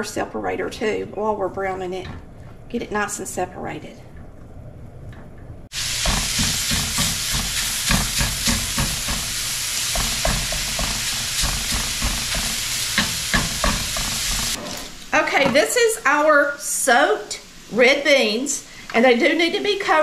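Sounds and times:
sausage sizzling in a skillet: 0:05.7 - 0:14.6
utensil chopping and scraping pan: 0:05.9 - 0:14.8.

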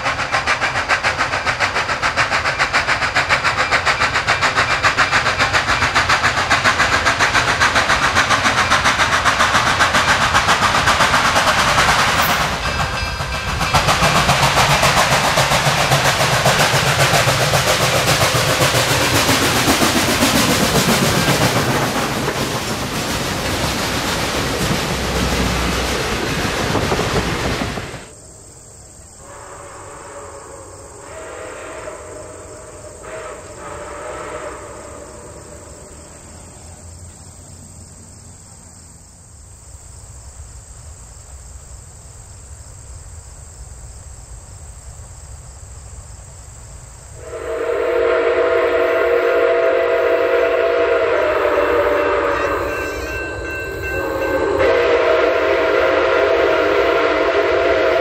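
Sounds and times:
passenger cars rolling past: 0:12.0 - 0:28.1
distant whistle blasts: 0:29.2 - 0:35.9, 0:47.2 - 0:58.0
steam train chime whistle: 0:29.2 - 0:35.9, 0:47.2 - 0:58.0.

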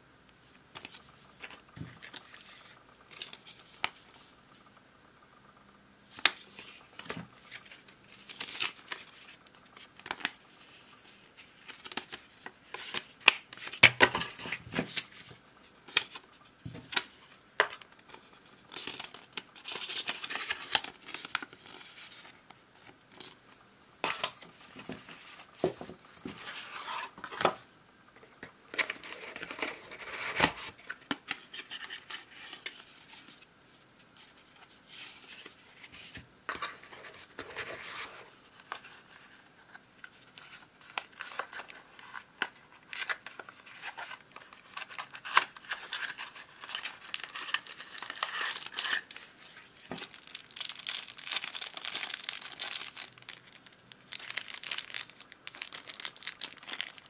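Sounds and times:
cardboard and plastic bag crinkling: 0:40.3 - 0:57.0.

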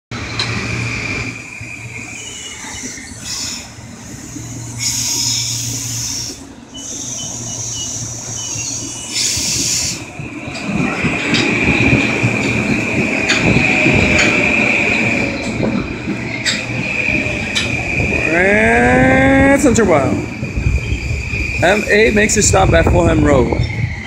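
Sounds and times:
electric train rumbling past: 0:00.1 - 0:24.0
train low hum: 0:00.1 - 0:24.0
air hiss bursts: 0:03.2 - 0:10.1
high-pitched wheel squeal: 0:23.3 - 0:24.0.

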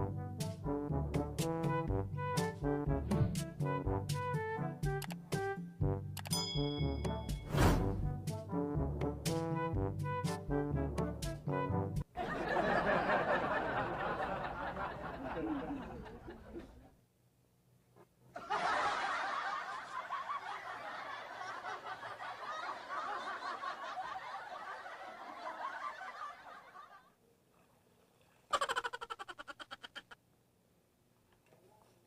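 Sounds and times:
people laughing: 0:12.2 - 0:16.9, 0:18.4 - 0:27.1.

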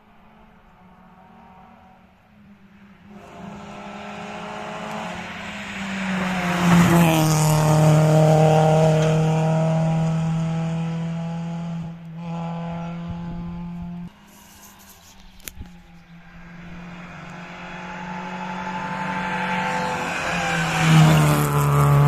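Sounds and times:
rally car engine passing: 0:00.0 - 0:22.0.

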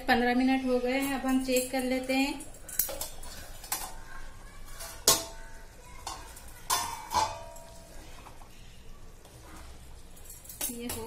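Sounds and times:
metal spoon stirring a pot: 0:00.8 - 0:11.0
metallic clinks against pot: 0:01.0 - 0:03.9, 0:10.1 - 0:11.0.

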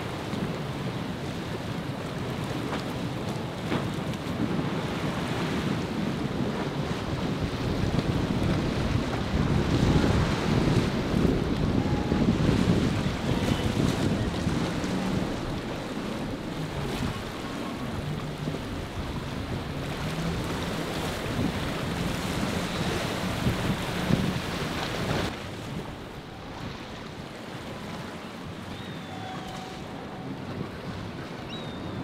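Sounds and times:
boat engine drone: 0:00.0 - 0:32.0
wind buffeting microphone: 0:00.0 - 0:32.0
water rushing and spraying: 0:07.0 - 0:30.8.

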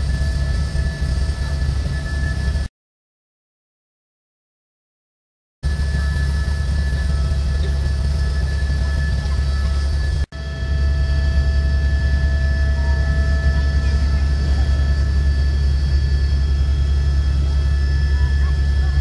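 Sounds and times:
helicopter rotor throb: 0:00.0 - 0:02.7, 0:05.6 - 0:19.0
high whines: 0:05.7 - 0:19.0.

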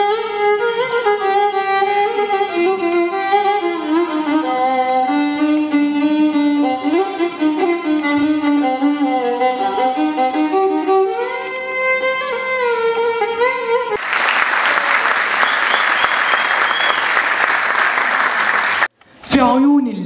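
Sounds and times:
solo violin melody: 0:00.0 - 0:14.0
audience applause: 0:14.0 - 0:18.9.

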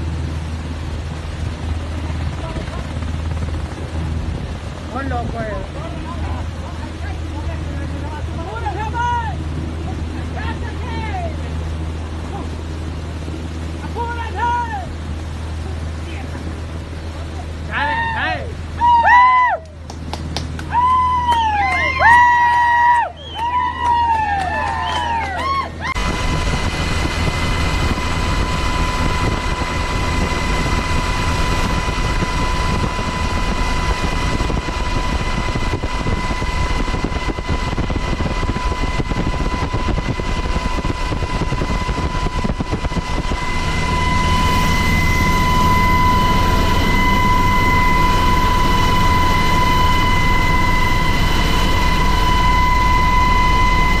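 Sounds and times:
helicopter rotor and engine noise: 0:00.0 - 0:54.0
high engine whine: 0:00.0 - 0:54.0.

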